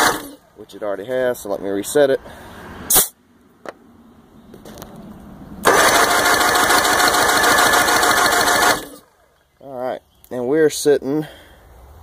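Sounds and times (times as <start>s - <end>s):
electric starter cranking outboard: 0.0s - 0.4s, 5.6s - 9.2s.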